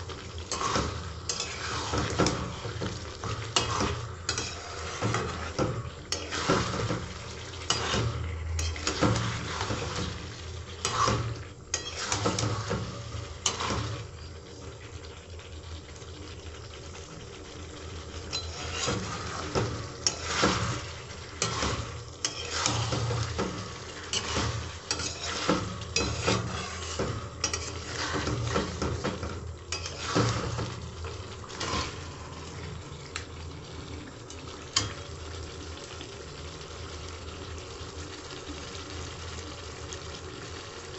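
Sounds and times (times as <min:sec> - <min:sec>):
curry sizzling: 0:00.0 - 0:40.9
metal spatula scraping pan: 0:00.4 - 0:14.1, 0:18.3 - 0:32.5.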